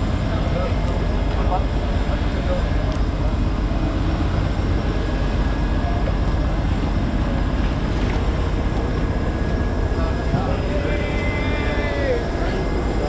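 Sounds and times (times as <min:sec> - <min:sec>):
boat engine rumble: 0:00.0 - 0:13.0
water splashing against hull: 0:00.0 - 0:13.0.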